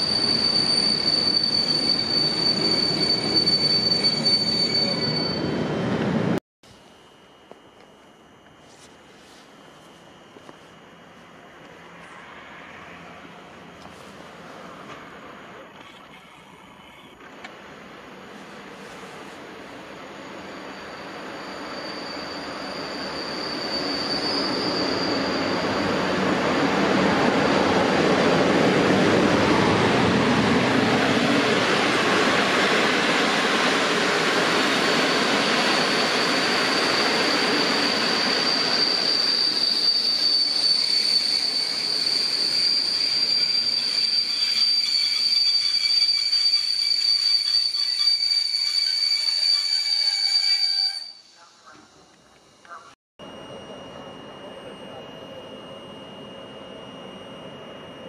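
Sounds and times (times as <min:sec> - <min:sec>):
high brake squeal: 0:00.0 - 0:05.7, 0:18.4 - 0:28.4, 0:29.2 - 0:51.4
train rumbling: 0:00.0 - 0:06.4, 0:09.1 - 0:52.1.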